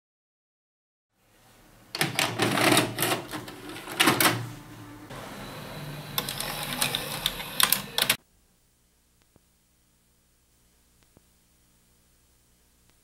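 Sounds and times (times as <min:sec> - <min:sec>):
tape mechanism whine: 0:02.0 - 0:08.2.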